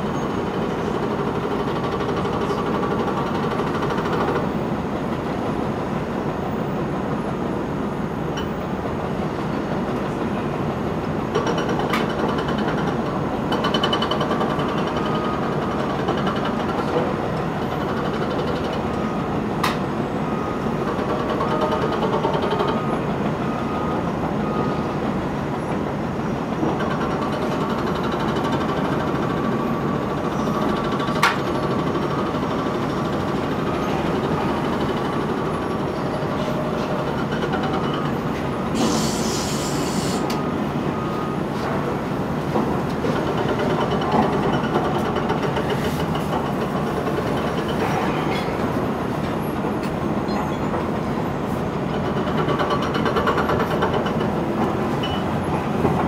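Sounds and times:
excavator diesel engine running: 0.0s - 56.0s
brief hiss: 38.8s - 40.3s.

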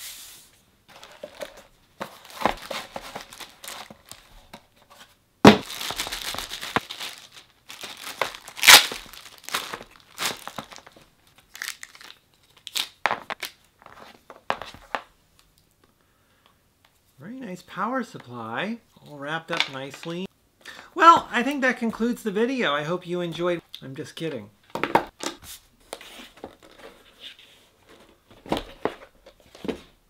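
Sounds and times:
plastic bag crinkling: 0.9s - 4.4s, 5.6s - 13.5s.

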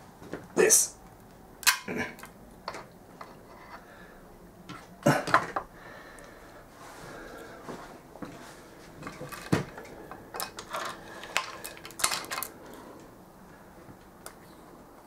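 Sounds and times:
metal parts clinking: 10.3s - 12.5s.

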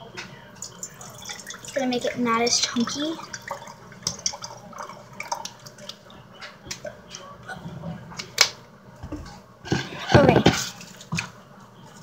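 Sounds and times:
water trickling into jar: 0.6s - 6.1s.

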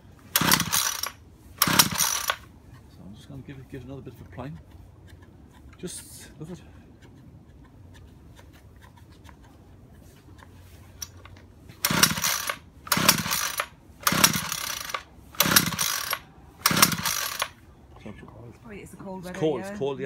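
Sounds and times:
recoil starter cord pulls: 0.3s - 2.5s, 11.0s - 17.6s.

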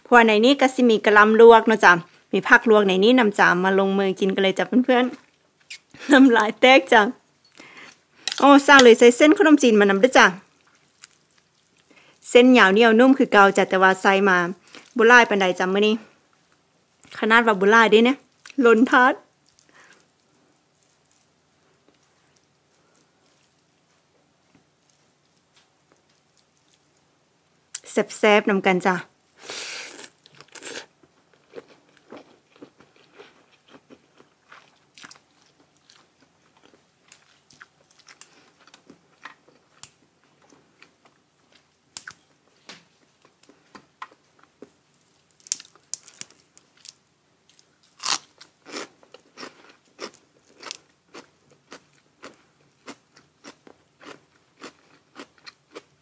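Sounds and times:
crunching bites and chewing: 30.0s - 40.0s, 43.8s - 55.9s.

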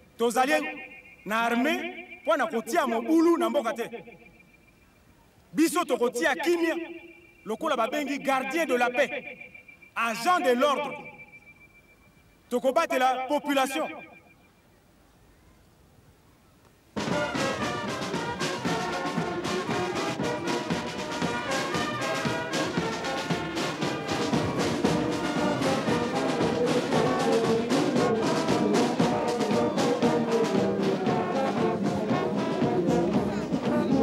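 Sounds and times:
bass drum beat: 17.0s - 34.0s
brass band playing a march: 17.0s - 34.0s.

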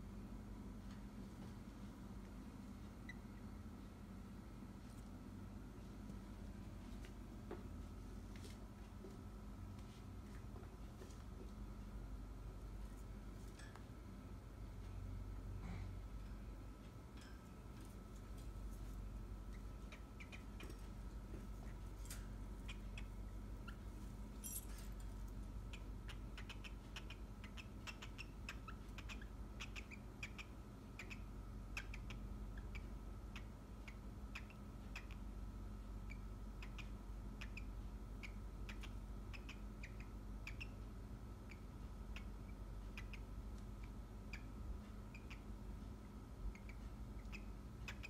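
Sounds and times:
steady low hum: 0.0s - 48.0s
cockatiel chirping: 19.5s - 20.8s, 25.7s - 35.2s, 36.1s - 40.8s, 41.4s - 45.5s, 46.5s - 48.0s.

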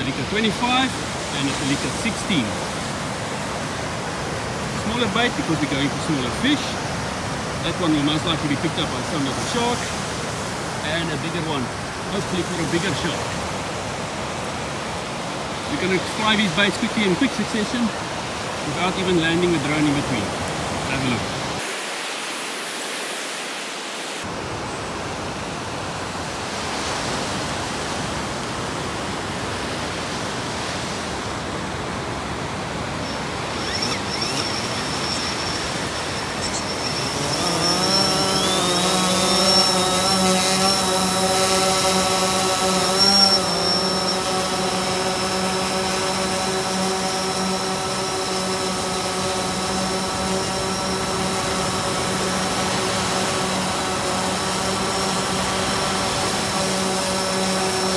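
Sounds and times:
drone propeller buzz: 0.0s - 24.3s, 30.1s - 57.9s
surf: 0.0s - 24.4s, 25.6s - 57.9s.

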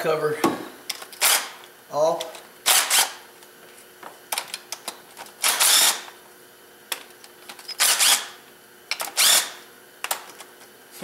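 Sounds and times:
power driver bursts: 2.6s - 3.2s, 5.4s - 6.1s, 7.8s - 8.4s, 9.1s - 9.6s.

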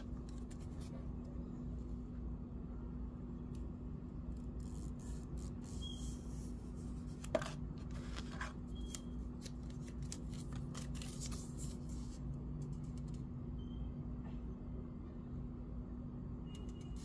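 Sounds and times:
steady low hum: 0.0s - 17.0s
paper tape crinkling: 7.0s - 12.2s.

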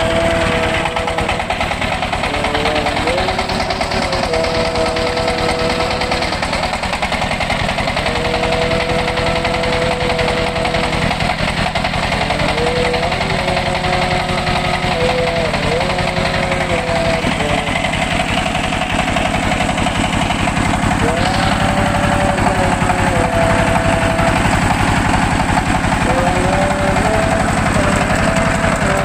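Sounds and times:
diesel generator running: 0.0s - 29.0s.

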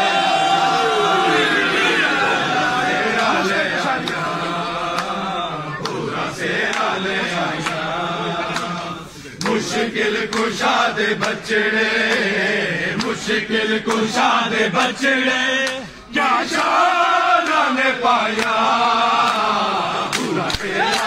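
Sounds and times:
crowd of men chanting: 0.0s - 21.0s
hand claps: 3.2s - 14.2s, 15.6s - 15.9s, 17.4s - 17.7s, 18.3s - 21.0s.

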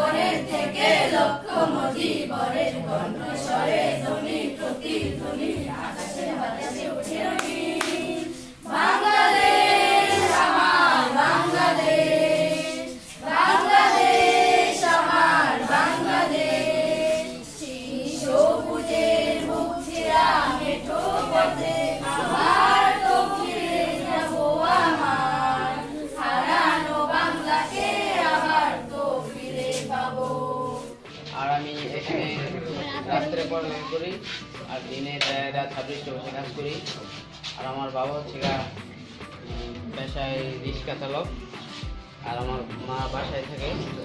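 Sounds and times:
children singing: 0.0s - 31.1s.

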